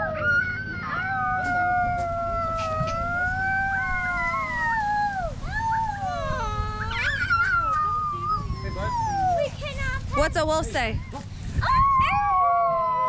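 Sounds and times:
wolves howling: 0.0s - 9.5s.

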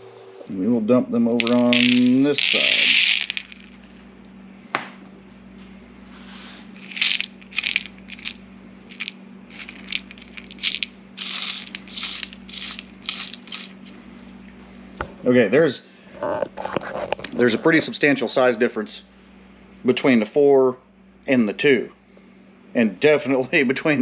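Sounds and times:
shot pellets clicking: 1.4s - 3.8s, 9.0s - 13.8s.

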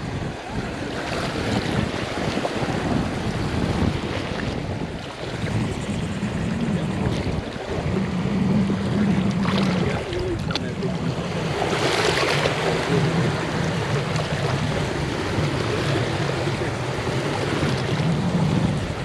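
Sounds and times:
surf washing onto beach: 0.0s - 19.0s
wind buffeting microphone: 0.0s - 19.0s.

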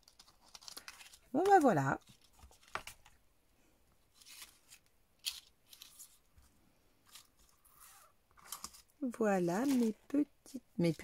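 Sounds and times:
paper rustling: 0.0s - 3.2s, 4.1s - 10.1s.

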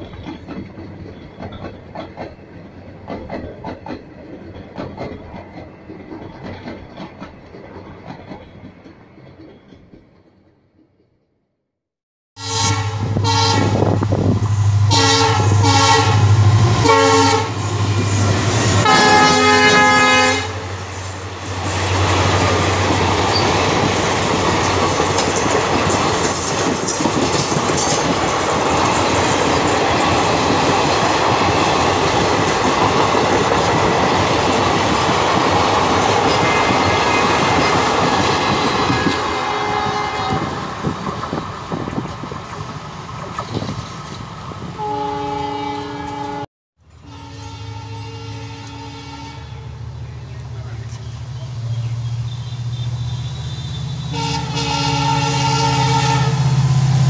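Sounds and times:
wheels clattering over rail joints: 0.0s - 10.7s
train horn blasts: 12.4s - 20.9s, 38.9s - 40.6s, 44.8s - 50.0s, 52.3s - 56.7s.

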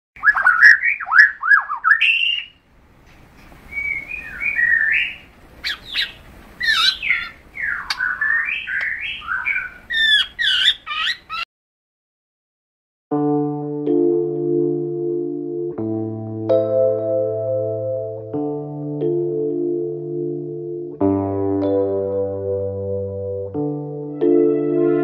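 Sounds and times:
birds warbling and chirping: 0.2s - 2.6s, 3.7s - 11.4s.

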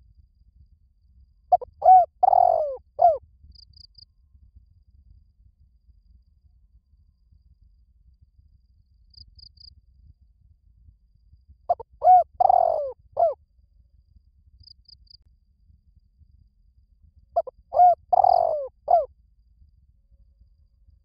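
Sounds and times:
dove cooing: 1.5s - 3.2s, 11.7s - 13.4s, 17.4s - 19.1s.

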